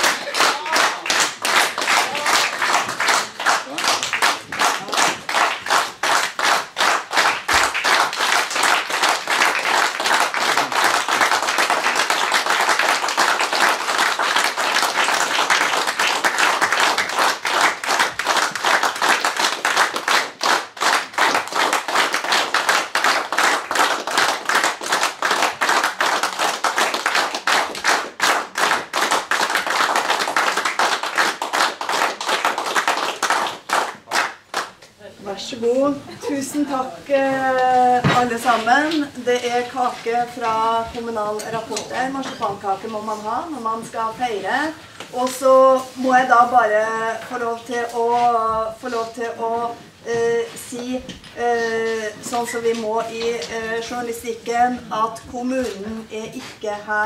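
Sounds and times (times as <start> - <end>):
audience clapping: 0.0 - 35.0.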